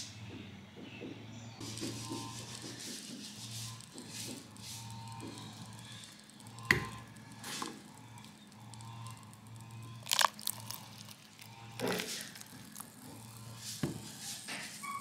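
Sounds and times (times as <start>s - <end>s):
faint fizzing and crackling: 1.6s - 14.7s.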